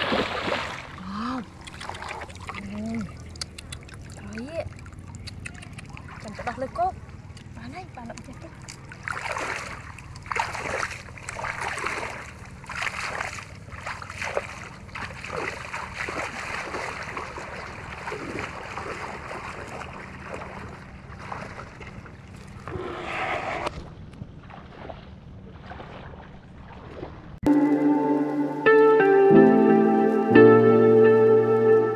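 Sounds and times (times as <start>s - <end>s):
water splashing and sloshing: 0.0s - 28.8s.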